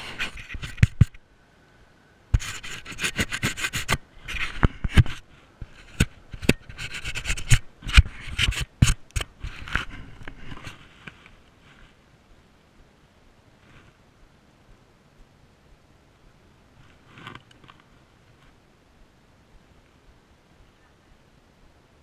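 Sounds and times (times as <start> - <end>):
gloved hand scraping camera: 0.0 - 1.2, 2.4 - 12.0, 16.8 - 18.6.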